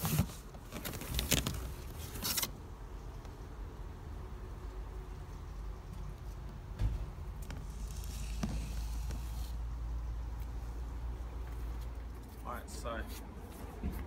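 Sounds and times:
handling rustle and click: 0:00.0 - 0:03.4.

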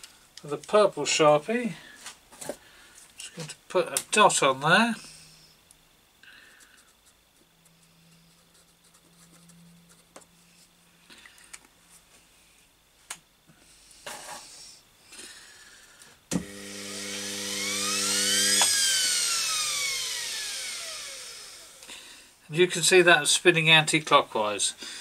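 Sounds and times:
mains buzz: 0:13.4 - 0:25.0
electric motor whine: 0:16.3 - 0:22.0.

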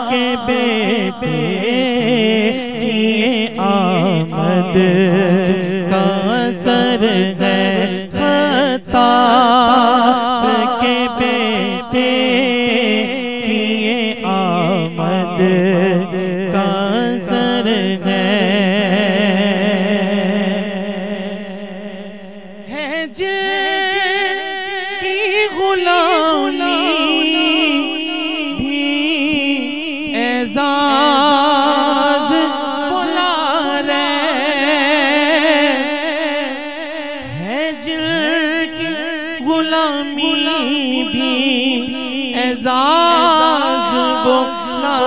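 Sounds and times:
man singing melismatic phrases: 0:00.0 - 0:20.7, 0:22.7 - 0:45.0.

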